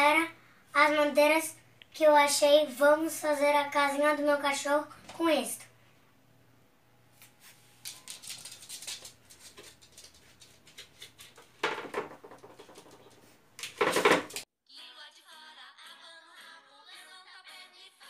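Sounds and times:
boards clattering: 0:11.6 - 0:13.0, 0:13.6 - 0:14.4.

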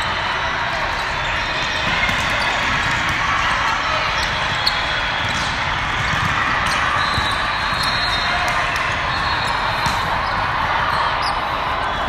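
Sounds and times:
volleyball hits: 0:01.7 - 0:11.3.

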